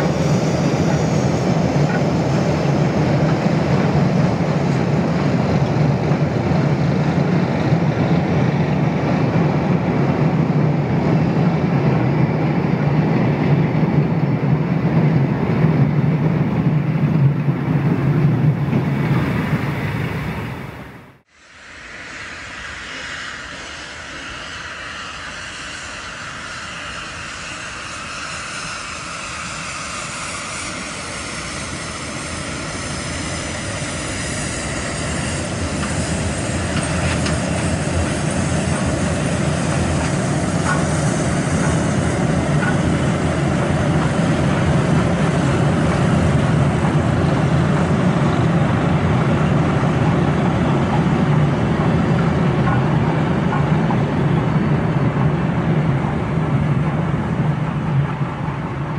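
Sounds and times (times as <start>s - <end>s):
steam locomotive hiss: 0.0s - 14.9s, 17.7s - 58.9s
train rumbling on bridge: 0.0s - 58.9s.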